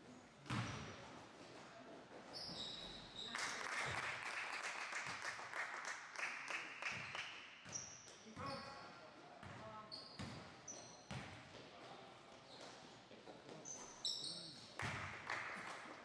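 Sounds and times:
sneakers squeaking on gym floor: 0.4s - 1.2s, 2.1s - 3.6s, 7.6s - 11.5s, 12.4s - 15.0s
spectators clapping: 3.3s - 7.5s, 15.0s - 16.0s.

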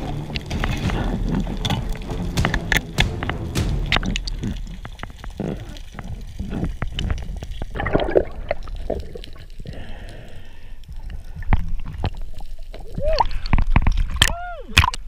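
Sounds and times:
water gurgling and bubbling: 0.0s - 10.0s
sharp clicks and knocks: 0.2s - 7.3s.

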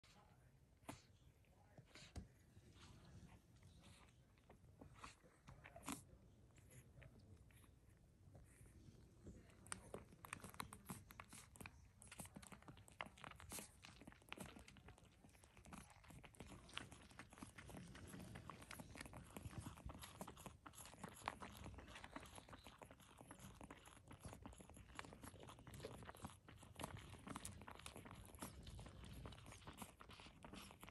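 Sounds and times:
puppies suckling: 0.0s - 30.9s.

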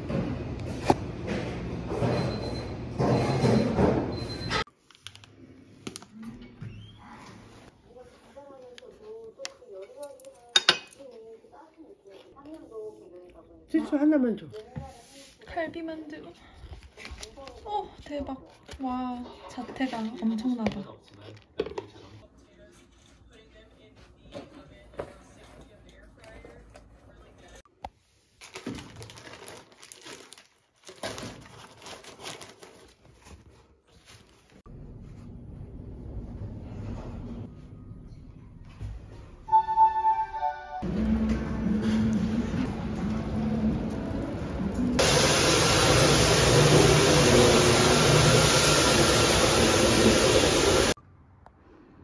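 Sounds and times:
plastic wrapping crinkling: 28.3s - 34.7s.

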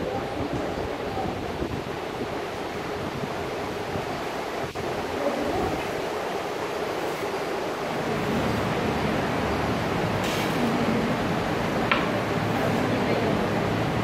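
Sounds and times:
sharp tap: 11.9s - 12.2s.

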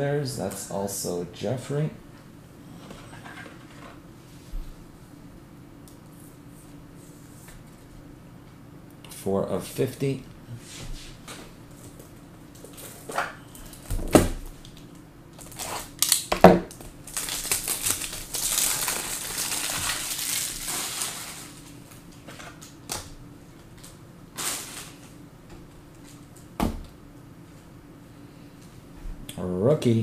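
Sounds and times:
packaging rustling and tearing: 15.4s - 22.7s.

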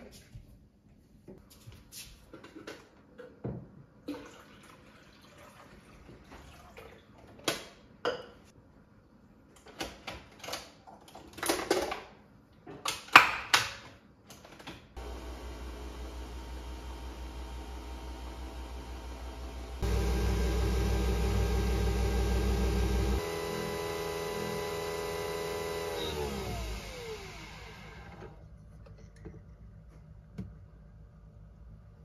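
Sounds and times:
coffee machine brewing hum: 15.0s - 32.0s.

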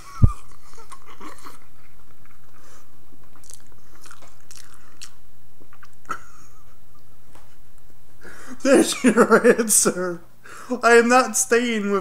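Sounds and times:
low electrical hum: 0.0s - 12.0s
chewing: 0.4s - 6.1s.

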